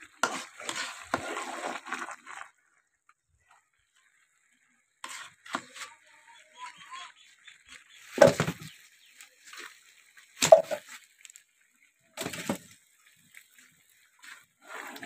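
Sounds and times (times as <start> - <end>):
firewood knocking and scraping: 8.2 - 8.8, 10.4 - 11.0.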